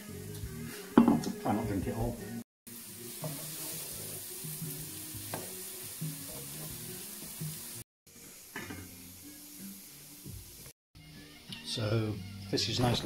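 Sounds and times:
background music: 0.0s - 13.0s
leeks sizzling in a frying pan: 2.7s - 10.7s.

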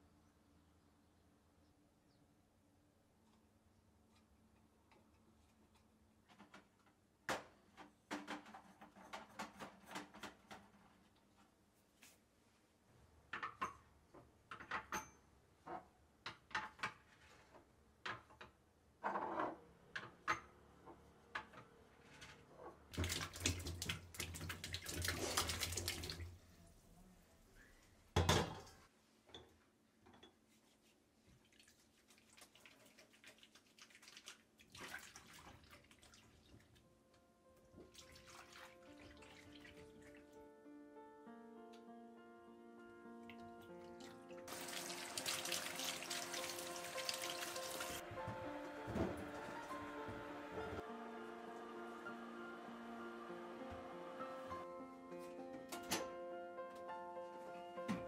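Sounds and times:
water pouring into sink: 22.9s - 26.4s, 31.6s - 36.6s, 37.9s - 40.2s, 44.5s - 48.0s.

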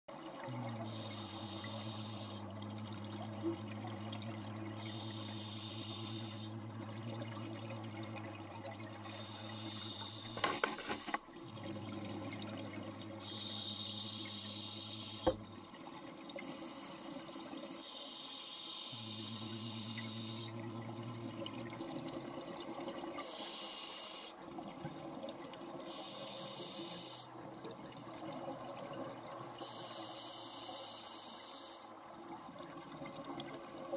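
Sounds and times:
regulator breath hiss: 0.9s - 2.4s, 4.9s - 6.5s, 9.1s - 11.2s, 13.2s - 15.4s, 16.3s - 20.5s, 23.2s - 24.4s, 25.9s - 27.3s, 29.6s - 31.9s
bubbling underwater: 2.0s - 5.1s.

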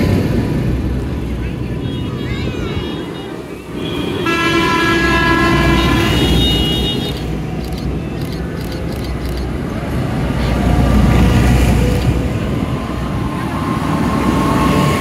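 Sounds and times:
tractor diesel engines rumbling: 0.0s - 15.0s
tractor horn blast: 3.0s - 7.3s.

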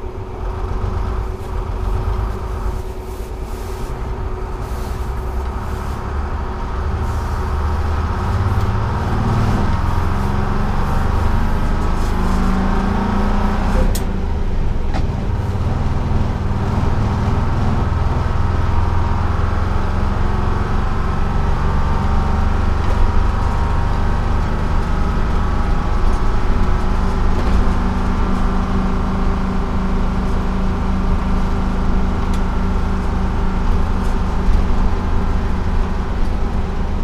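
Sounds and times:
road noise: 0.0s - 37.0s
two-stroke diesel bus engine running: 0.0s - 37.0s.

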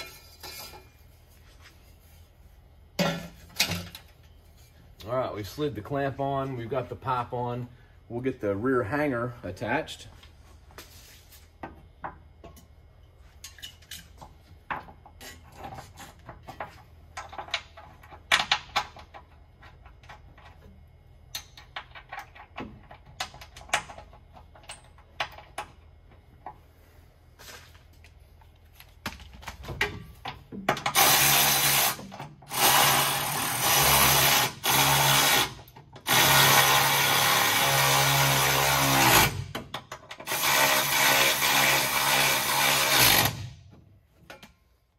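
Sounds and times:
cordless power tool running: 36.1s - 39.4s.

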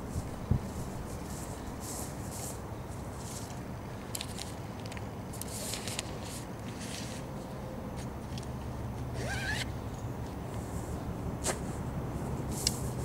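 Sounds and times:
wind rumbling on microphone: 0.0s - 1.8s
rustles in grass: 0.0s - 8.3s.

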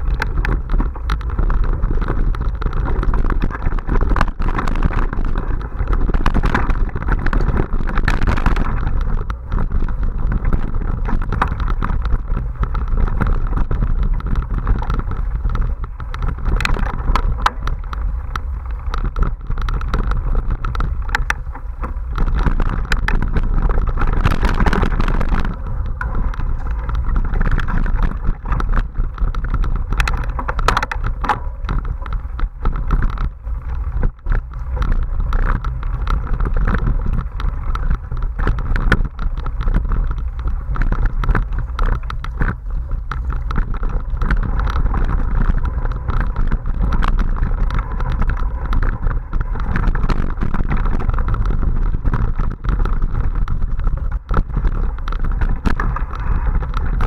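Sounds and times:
bike rattling on bumpy trail: 0.0s - 57.0s
wind on microphone: 0.0s - 57.0s.

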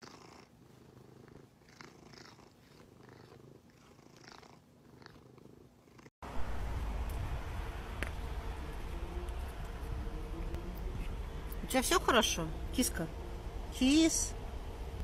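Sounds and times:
cat purring: 0.0s - 6.1s.

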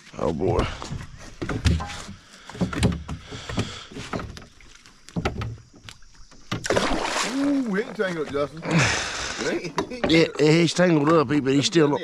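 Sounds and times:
knocks and rattles in metal boat: 0.4s - 6.7s.

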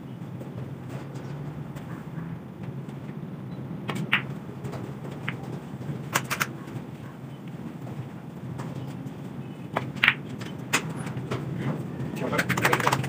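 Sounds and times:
snooker balls clicking: 3.8s - 8.0s, 8.6s - 13.0s.

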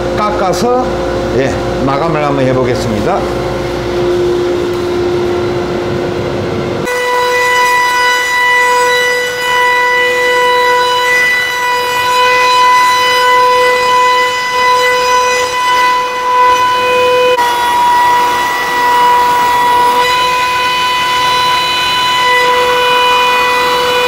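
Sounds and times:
low rumble: 0.9s - 6.9s
router spindle whining: 0.9s - 24.0s.

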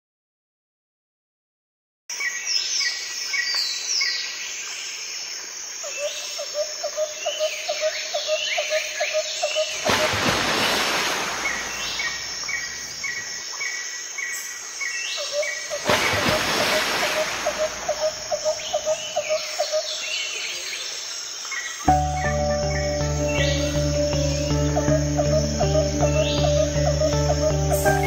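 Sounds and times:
birds chirping and calling: 15.2s - 20.7s, 21.9s - 28.0s.

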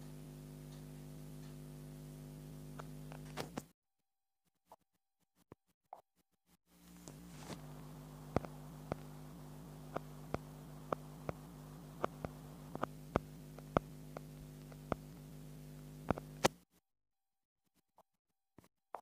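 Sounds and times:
steady low hum: 0.0s - 3.7s, 6.7s - 16.6s
sharp clicks: 7.0s - 16.6s.

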